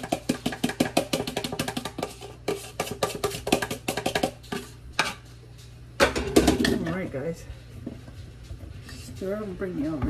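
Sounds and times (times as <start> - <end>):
spoon scraping mixing bowl: 0.0 - 5.4.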